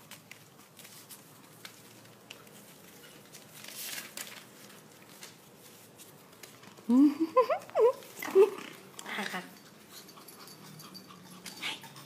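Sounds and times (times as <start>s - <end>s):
paper rustling: 0.0s - 6.9s
puppy paws scrabbling on paper: 0.0s - 6.9s.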